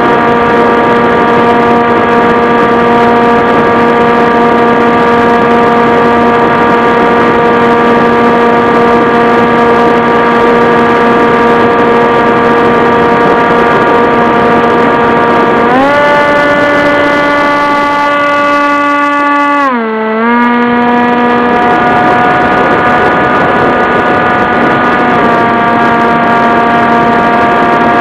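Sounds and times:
model airplane motor droning: 0.0s - 28.0s
wind rushing over camera: 0.0s - 28.0s.

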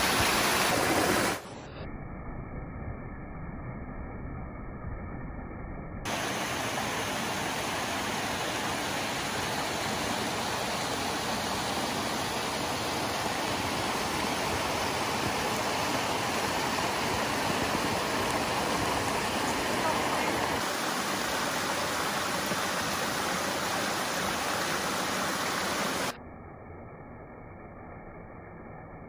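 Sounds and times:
waterfalls splashing over rocks: 0.0s - 1.5s, 6.1s - 26.2s.

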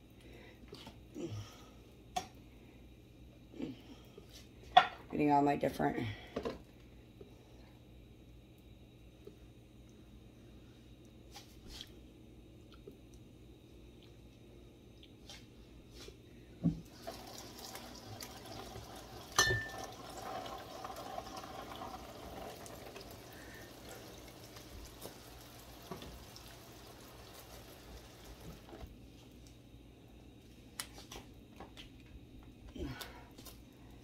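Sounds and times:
tap water running into steel sink: 16.9s - 28.8s.

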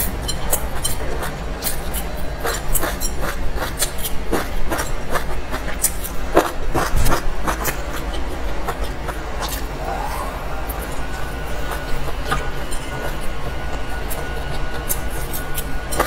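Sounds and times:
person chewing: 0.0s - 16.0s
steady low hum: 0.0s - 16.0s
wet mouth clicks: 8.8s - 10.9s.

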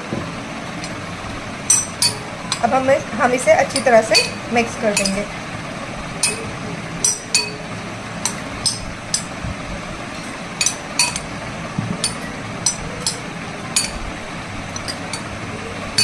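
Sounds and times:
spoon clinking against glass bowl: 1.7s - 2.6s, 3.8s - 5.2s, 6.2s - 7.6s, 10.6s - 11.3s, 13.8s - 14.0s.

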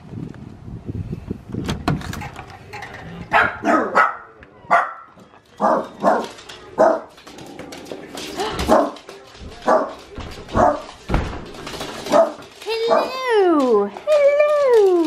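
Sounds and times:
small dogs barking: 3.3s - 7.2s, 12.1s - 13.3s.

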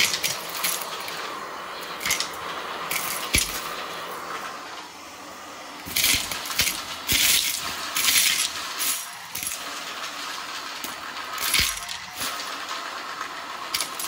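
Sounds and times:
small hard pieces clinking: 0.0s - 1.3s, 1.9s - 3.8s, 5.8s - 9.7s, 10.8s - 12.7s, 13.7s - 14.0s.

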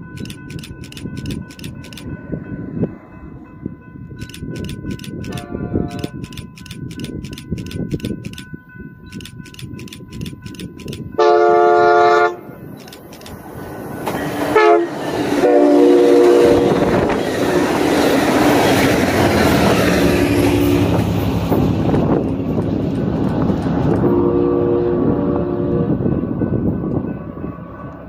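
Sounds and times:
crossing bell ringing: 0.0s - 15.2s
train cars rushing and clattering: 0.0s - 28.0s
train horn blasts: 5.3s - 6.2s, 11.2s - 12.6s, 14.5s - 17.2s, 20.3s - 21.0s, 24.0s - 26.1s.

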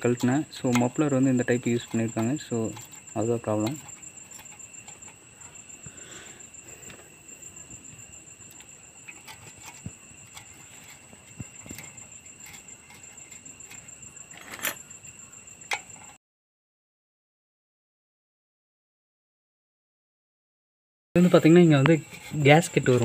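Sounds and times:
insects chirring: 0.0s - 16.2s, 21.2s - 23.0s
metallic clicks and clinks: 8.4s - 14.8s.

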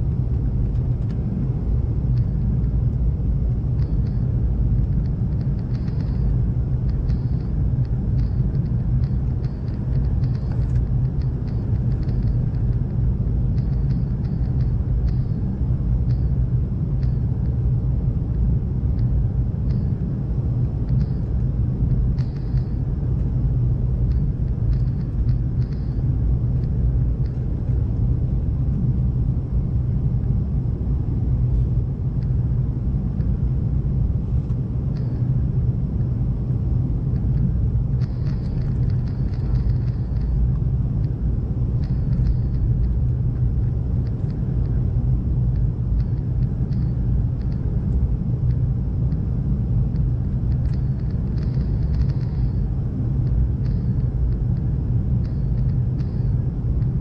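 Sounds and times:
airliner engines rumbling: 0.0s - 57.0s
faint ticks: 6.9s - 12.9s, 41.8s - 43.2s, 45.5s - 47.6s, 49.9s - 52.6s, 53.2s - 56.9s.

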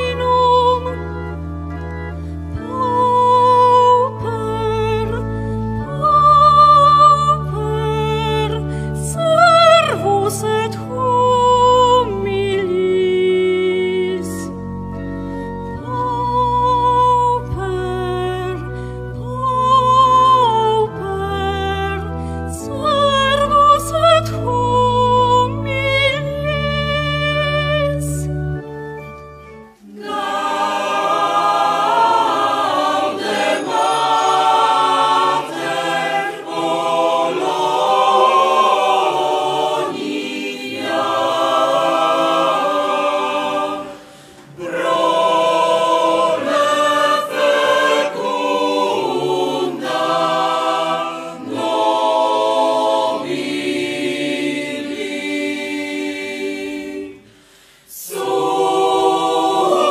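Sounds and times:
mixed choir singing a cappella: 0.0s - 1.0s, 22.6s - 28.2s, 29.8s - 59.9s.

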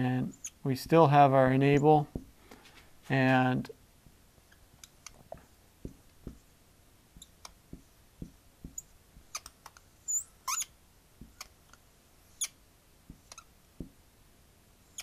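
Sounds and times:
marker squeaks: 0.2s - 0.7s, 7.2s - 7.6s, 8.6s - 11.7s, 12.3s - 13.6s
marker ticking on a board: 7.2s - 9.9s.

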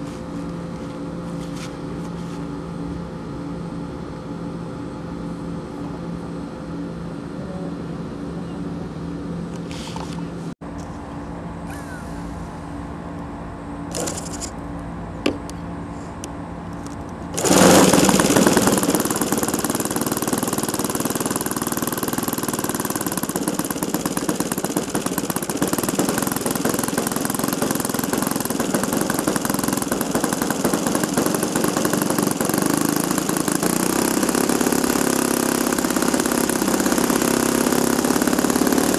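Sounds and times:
model airplane engine running: 13.9s - 14.5s, 17.3s - 38.9s.

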